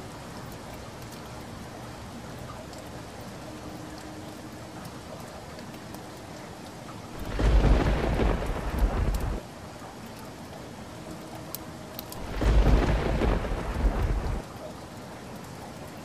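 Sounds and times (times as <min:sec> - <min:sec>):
rain hissing: 0:00.0 - 0:09.8, 0:10.6 - 0:16.0
thunder clap rumbling: 0:07.2 - 0:09.4, 0:12.2 - 0:14.4.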